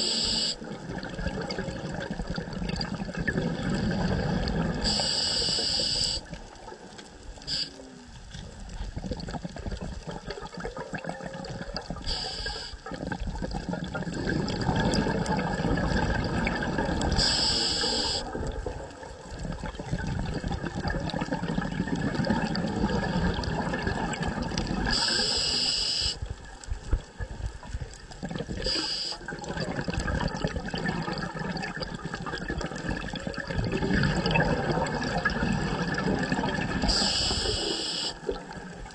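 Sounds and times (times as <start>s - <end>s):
regulator hissing inhalations: 0.0s - 0.6s, 4.8s - 6.3s, 7.5s - 7.8s, 12.0s - 12.9s, 17.2s - 18.4s, 24.9s - 26.3s, 28.6s - 29.3s, 36.9s - 38.3s
bubbling exhalation: 0.7s - 5.0s, 9.0s - 12.1s, 12.8s - 25.1s, 28.2s - 37.1s.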